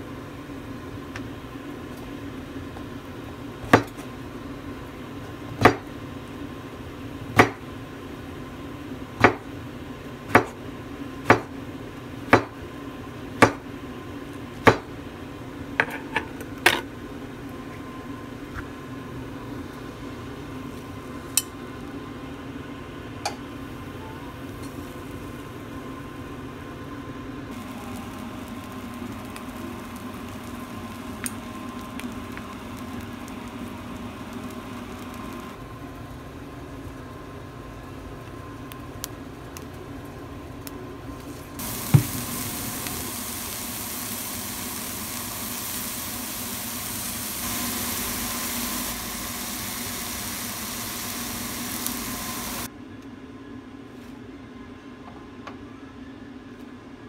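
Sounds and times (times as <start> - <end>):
steady hum: 17.0 - 53.6
mushrooms sizzling in frying pan: 23.6 - 25.8, 27.5 - 35.6, 41.6 - 52.7.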